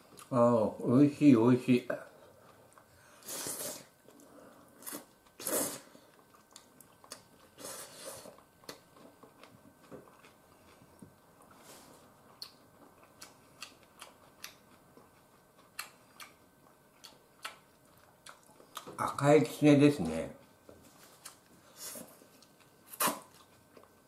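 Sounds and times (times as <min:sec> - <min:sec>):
person chewing: 0:02.1 - 0:19.0, 0:20.4 - 0:24.0
person slurping noodles: 0:03.2 - 0:04.0, 0:04.8 - 0:06.0, 0:07.6 - 0:08.4.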